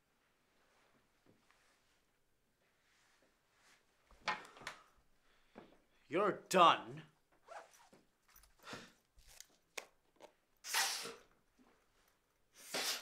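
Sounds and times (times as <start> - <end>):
man breathing and sniffing: 8.5 - 9.1, 12.5 - 13.0.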